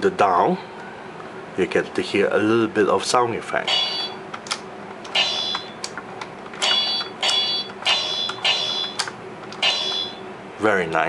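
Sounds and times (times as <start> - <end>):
electronic metallic sword clangs: 5.2 - 5.7.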